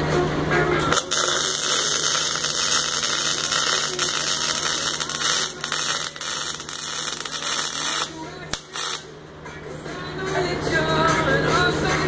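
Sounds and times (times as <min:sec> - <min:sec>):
welding arc crackling hiss: 0:00.8 - 0:09.1.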